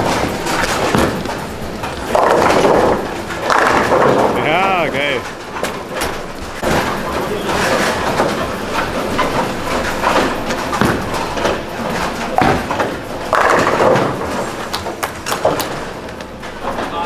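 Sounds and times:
bowling balls thudding: 0.0 - 17.0
background voices: 4.1 - 5.3.

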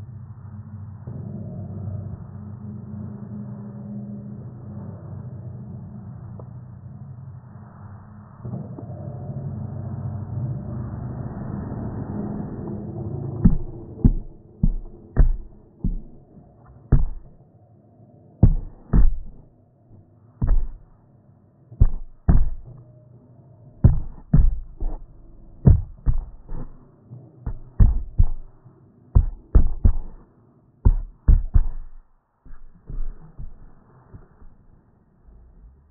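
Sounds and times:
faint steady hum: 0.0 - 35.9
dull thumps on phone microphone: 13.4 - 16.2, 16.9 - 17.4, 18.4 - 19.4, 20.4 - 20.9, 21.8 - 22.8, 23.9 - 25.0, 25.7 - 26.8, 27.5 - 28.6, 29.2 - 30.2, 30.9 - 34.6.

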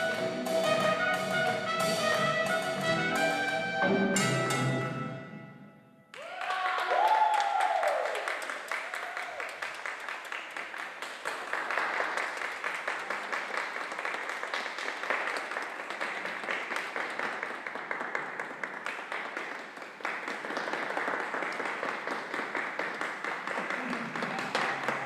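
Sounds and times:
audience applauding: 6.1 - 25.0.

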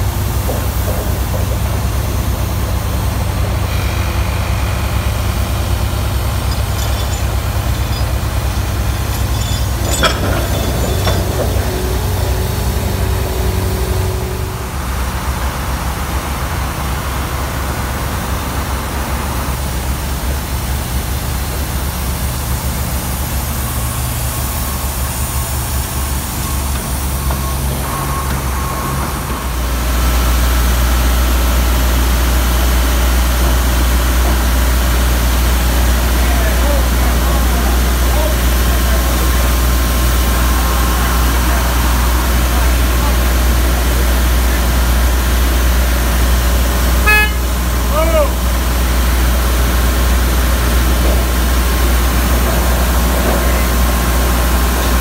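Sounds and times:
diesel engines rumbling: 0.0 - 55.0.

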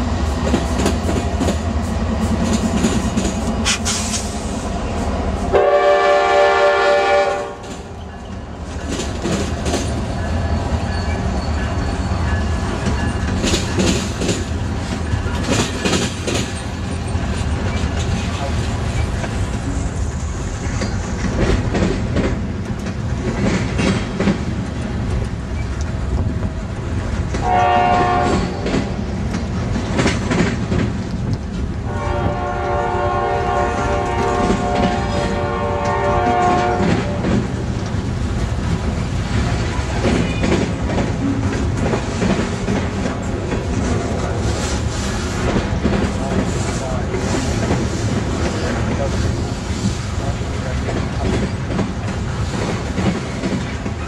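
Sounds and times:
train wheels clattering over rail joints: 0.0 - 4.5, 7.6 - 54.0
locomotive air horn blasts: 5.5 - 7.7, 27.4 - 28.6, 31.8 - 37.3.

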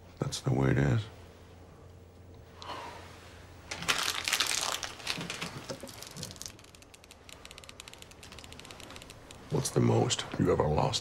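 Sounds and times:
plastic wrapper crumpling: 3.7 - 9.2.

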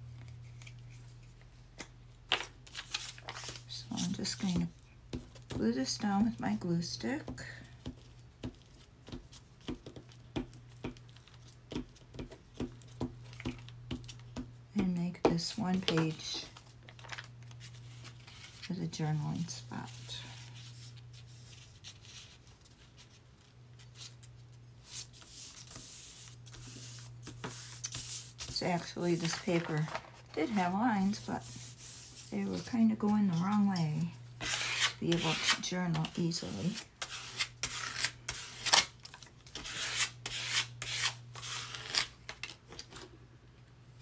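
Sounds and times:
low electrical hum: 0.0 - 44.0
tool scraping paper: 34.4 - 38.9, 39.5 - 42.1.

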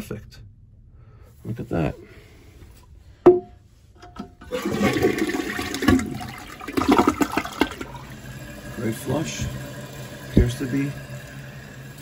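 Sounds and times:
toilet flush water rushing: 4.4 - 12.0.

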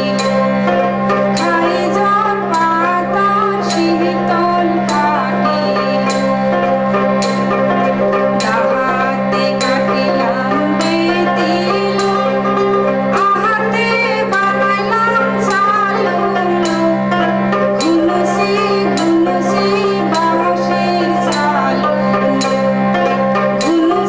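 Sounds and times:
woman singing: 0.0 - 0.6, 1.3 - 6.4, 8.4 - 22.9, 23.6 - 24.0
harmonium drone: 0.0 - 24.0.

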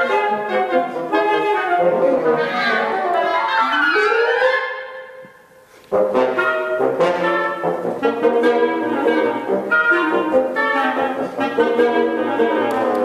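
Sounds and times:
woodwind ensemble playing chords: 0.0 - 13.0.

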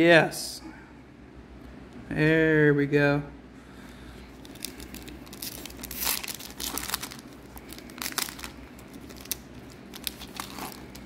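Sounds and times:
foil wrapper crinkling and tearing: 4.4 - 11.0.

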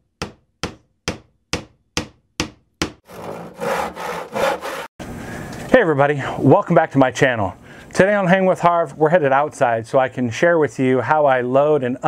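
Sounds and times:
sharp hammer-like knocks: 0.2 - 3.1
rough rubbing scraping noise: 3.1 - 4.9.

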